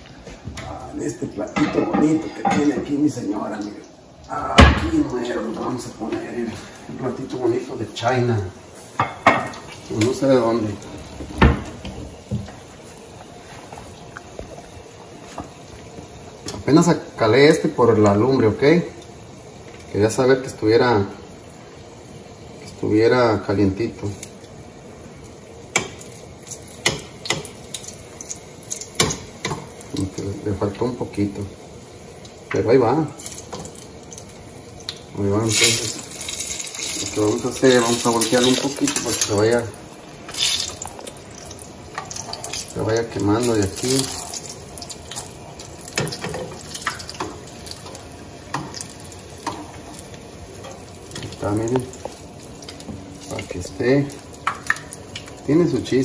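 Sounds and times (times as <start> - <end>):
food sizzling in oil: 0.9 - 56.0
metal tongs clicking on frying pan: 25.7 - 29.7.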